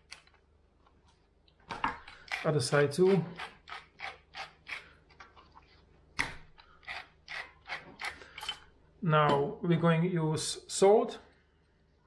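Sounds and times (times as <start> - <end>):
pepper mill grinding: 2.1 - 4.8, 6.8 - 8.6.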